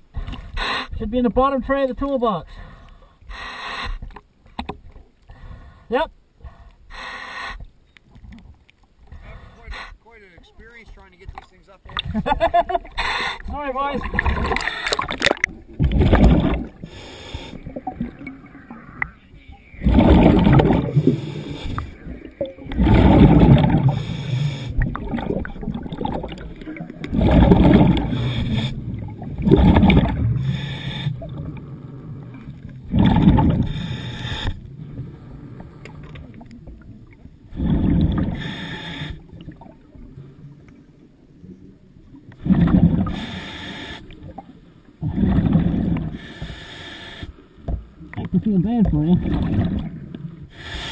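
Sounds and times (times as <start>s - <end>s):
diver exhaling bubbles underwater: 14.0s - 19.0s, 19.8s - 34.6s, 37.5s - 39.8s, 42.4s - 43.3s, 45.0s - 46.2s, 49.2s - 50.0s.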